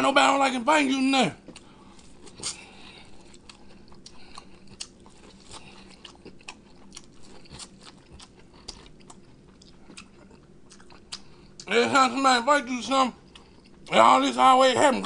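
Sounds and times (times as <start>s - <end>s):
chewing corn on the cob: 1.4s - 11.7s.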